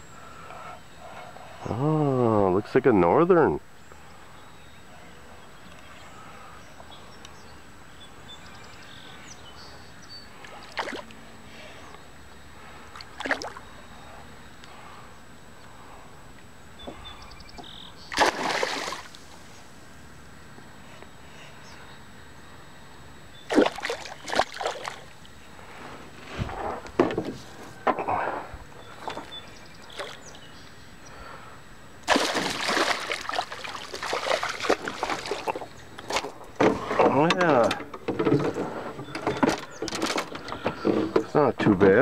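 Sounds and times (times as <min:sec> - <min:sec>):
fish splashing at surface: 0:18.1 - 0:19.2, 0:23.5 - 0:25.1, 0:32.1 - 0:36.2.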